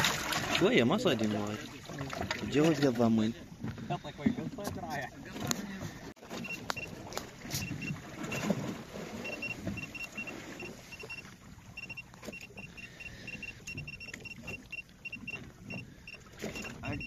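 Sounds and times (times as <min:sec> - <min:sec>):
water around boat: 0:00.0 - 0:17.0
short high beeps: 0:06.3 - 0:06.9, 0:07.6 - 0:08.5, 0:09.2 - 0:17.0.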